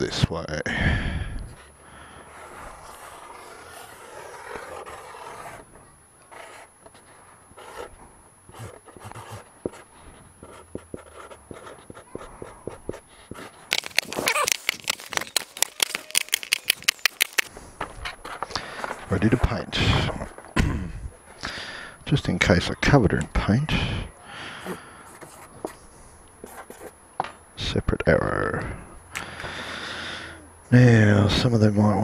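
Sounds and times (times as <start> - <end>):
marker scratching on cardboard: 2.3 - 5.6, 6.3 - 6.8, 7.6 - 17.5, 18.2 - 19.6, 26.4 - 27.0
fast run of sharp clicks: 8.5 - 9.5, 13.7 - 17.5
light taps and card handling: 13.7 - 17.5.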